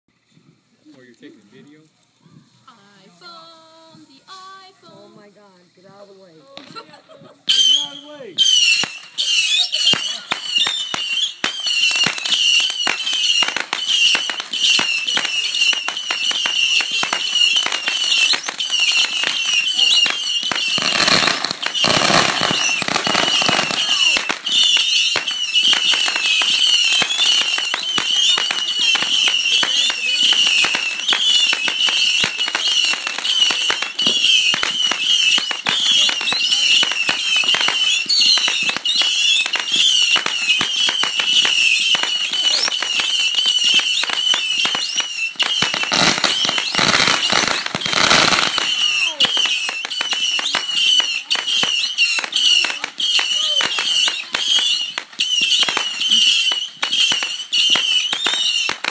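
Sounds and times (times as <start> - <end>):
firework crackling and pops: 0.5 - 58.9
firework fountain hissing: 0.5 - 58.9
high warbling whistle: 7.4 - 51.0.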